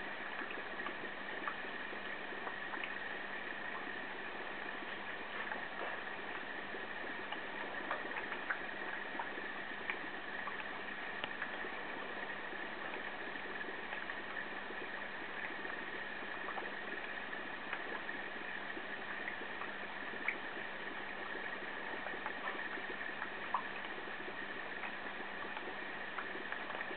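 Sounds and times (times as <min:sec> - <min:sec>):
soft ticks: 0:07.3 - 0:09.3, 0:09.9 - 0:11.6.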